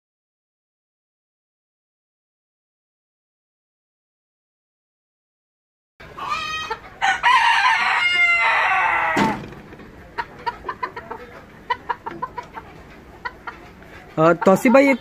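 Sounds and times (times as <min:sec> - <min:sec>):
rooster crowing: 0:06.2 - 0:09.4.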